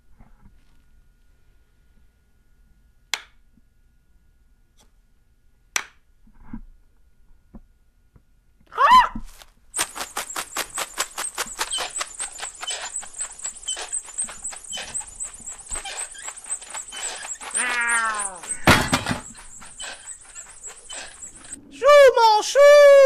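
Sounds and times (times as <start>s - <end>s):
rapid high squeaks: 9.8s - 22.4s
falling squeal: 9.8s - 23.0s
chirpy cartoon warble: 10.2s - 23.0s.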